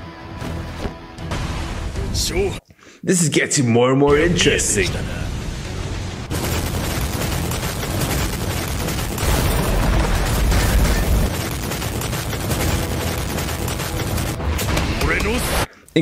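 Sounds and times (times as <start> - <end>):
rapid impacts and blasts: 4.2 - 15.7.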